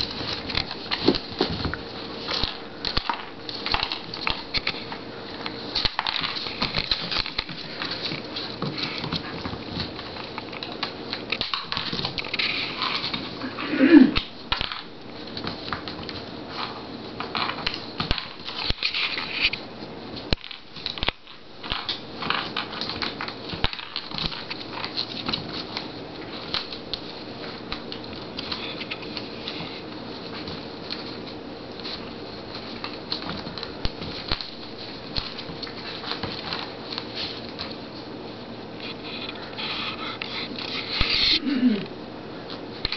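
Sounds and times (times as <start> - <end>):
puppy claws clicking on wooden floor: 0.0 - 13.4, 20.2 - 37.8.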